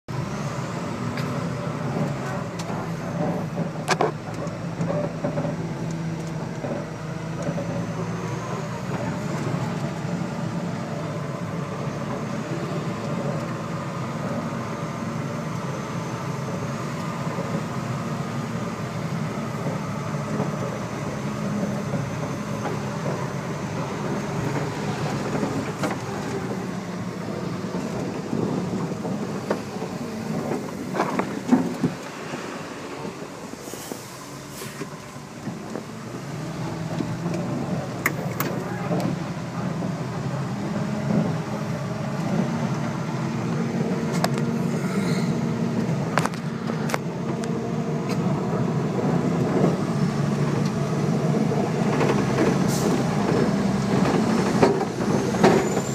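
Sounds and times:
diesel engine running: 0.1 - 55.9.

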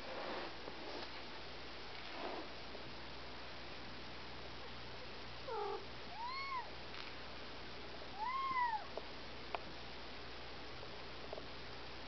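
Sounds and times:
kitten mewing: 5.5 - 6.7.

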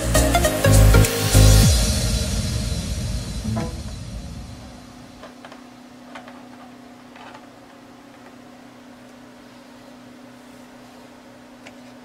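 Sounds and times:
low hum: 1.4 - 5.7.

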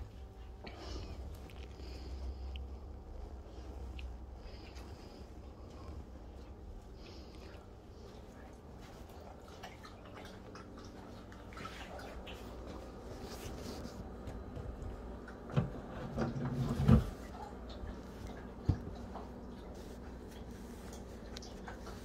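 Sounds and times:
dog licking: 5.6 - 13.0, 17.4 - 22.0.

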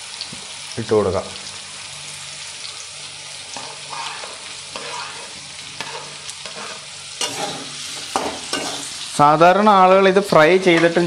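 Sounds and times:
food sizzling in hot oil: 0.0 - 11.0
metal spatula scraping pan: 3.5 - 9.0
spatula knocking pan: 3.6 - 8.9.

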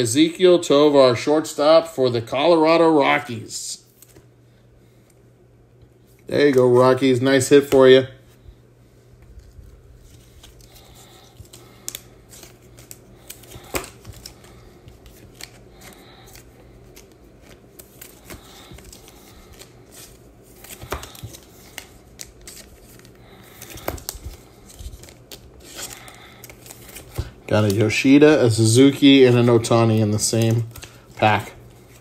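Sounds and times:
cards sliding and shuffling: 9.3 - 32.0.

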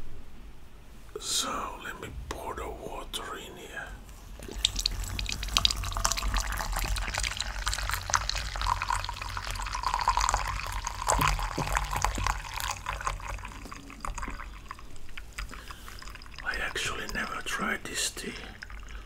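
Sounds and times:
water dripping: 4.0 - 19.0
water pouring into a teapot: 4.0 - 19.0.

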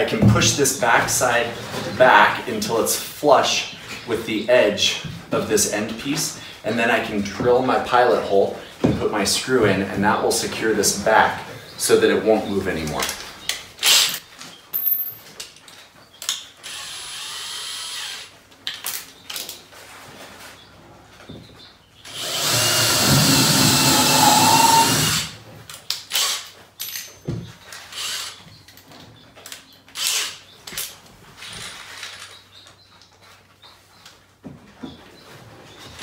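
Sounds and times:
cordless drill running into wood: 16.6 - 18.3, 22.1 - 25.4, 27.9 - 28.4.

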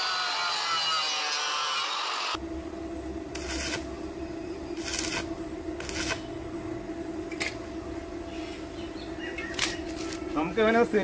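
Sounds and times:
steady low hum: 2.3 - 11.0.

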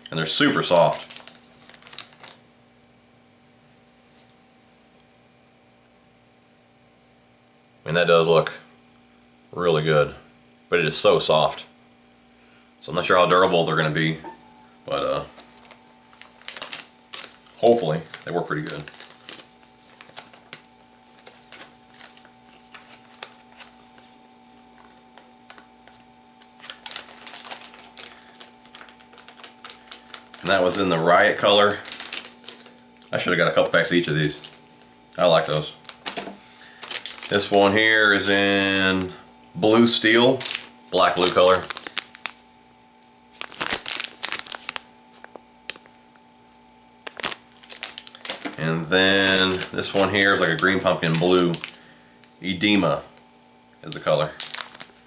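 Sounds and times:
faint steady hum: 0.0 - 55.0
plastic packaging crinkling: 0.1 - 2.5, 15.1 - 42.5, 43.3 - 46.2, 47.0 - 55.0.

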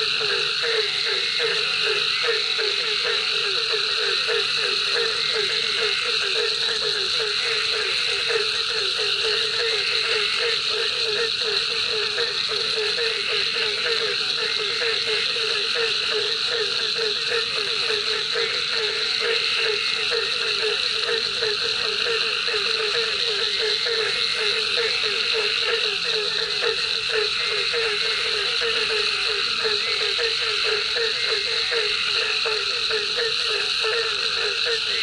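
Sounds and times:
frogs croaking: 0.0 - 35.0
high-pitched drone of night insects: 0.0 - 35.0.

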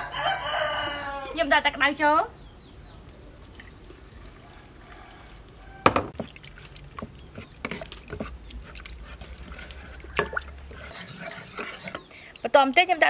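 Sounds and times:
spatula stirring in metal pot: 6.1 - 13.0.

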